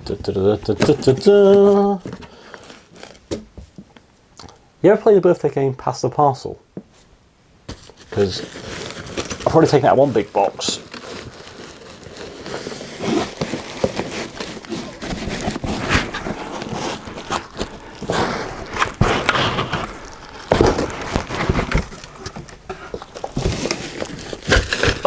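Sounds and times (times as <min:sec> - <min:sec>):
cardboard box and plastic rustling: 0:00.6 - 0:03.8, 0:07.7 - 0:25.0
package thumping: 0:13.1 - 0:25.0.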